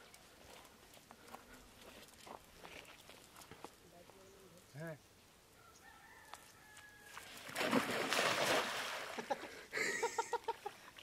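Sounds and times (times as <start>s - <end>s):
net splashing onto water: 7.2s - 9.3s.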